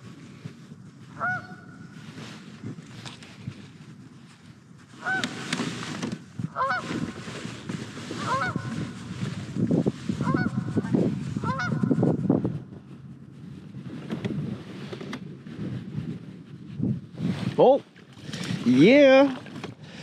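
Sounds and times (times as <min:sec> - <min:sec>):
goose honking: 0:05.0 - 0:05.4, 0:06.5 - 0:06.9, 0:08.2 - 0:08.8, 0:10.2 - 0:10.8, 0:11.4 - 0:11.9.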